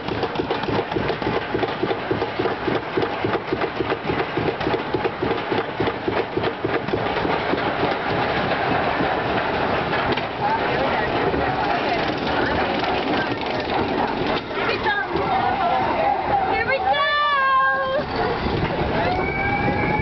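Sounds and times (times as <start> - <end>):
lift-hill chain clanking: 6.0 - 15.3.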